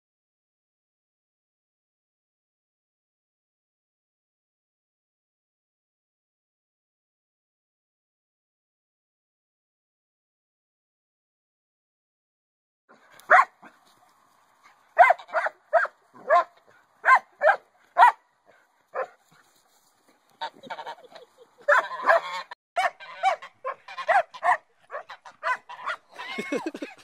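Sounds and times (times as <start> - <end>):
goose honking: 15.0 - 16.4, 20.4 - 27.0.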